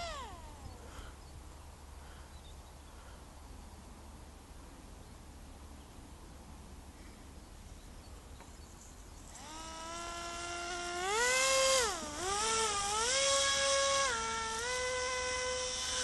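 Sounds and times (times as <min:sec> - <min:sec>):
model plane propeller buzzing: 0:00.0 - 0:01.3, 0:09.1 - 0:16.0.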